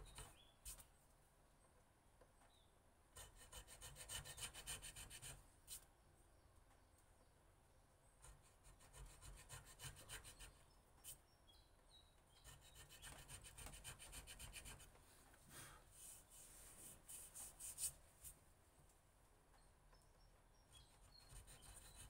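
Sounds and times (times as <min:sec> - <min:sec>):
steel tool scratching wood: 0:21.0 - 0:22.0.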